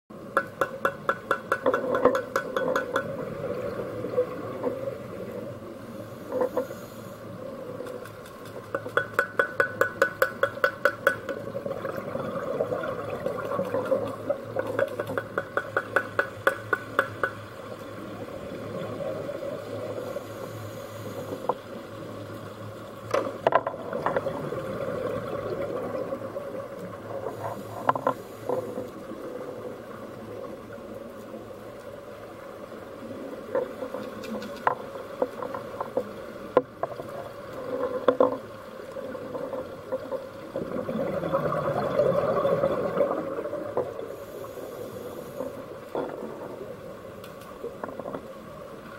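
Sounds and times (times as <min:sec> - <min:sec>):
sharp underwater clicks: 0:00.3 - 0:03.3, 0:07.8 - 0:11.9, 0:13.2 - 0:17.6, 0:33.6 - 0:36.0
rushing water swell: 0:11.4 - 0:14.8, 0:23.8 - 0:31.4, 0:39.0 - 0:48.9.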